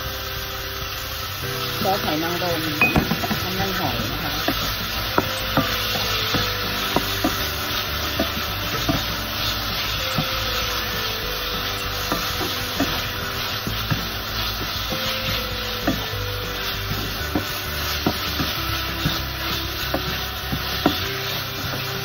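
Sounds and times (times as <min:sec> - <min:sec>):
meat sizzling in oil: 0:00.0 - 0:22.0
wooden spatula scraping pan: 0:01.9 - 0:22.0.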